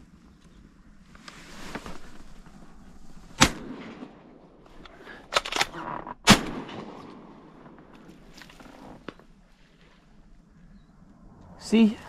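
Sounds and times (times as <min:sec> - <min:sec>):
shotgun shots: 0:03.4 - 0:04.3, 0:05.4 - 0:07.9.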